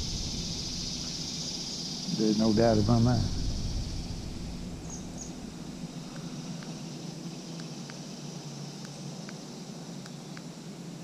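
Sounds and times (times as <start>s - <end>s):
high hiss: 0.0s - 11.0s
low hum: 0.0s - 11.0s
faint ticks: 6.1s - 6.8s, 7.5s - 8.1s, 8.8s - 9.4s, 10.0s - 10.5s.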